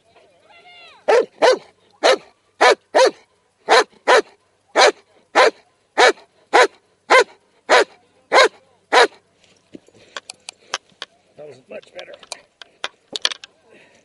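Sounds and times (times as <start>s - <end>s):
dog barking loudly: 1.1s - 9.2s.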